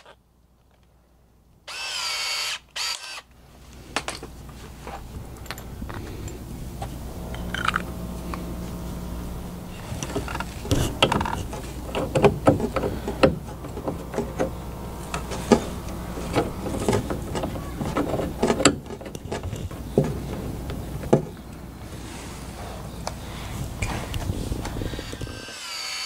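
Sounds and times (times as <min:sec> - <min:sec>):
plumbing fittings clicking and knocking: 0:10.0 - 0:15.6.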